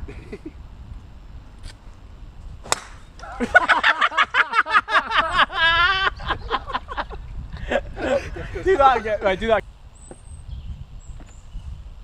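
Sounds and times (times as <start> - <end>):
golf club striking ball: 2.6 - 3.3.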